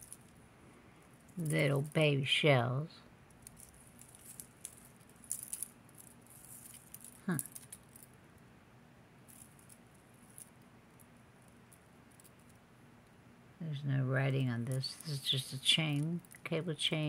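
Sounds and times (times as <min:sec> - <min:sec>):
necklaces clicking and jingling: 0:00.0 - 0:00.4, 0:01.2 - 0:02.0, 0:03.3 - 0:08.2, 0:09.3 - 0:12.6, 0:14.7 - 0:16.5.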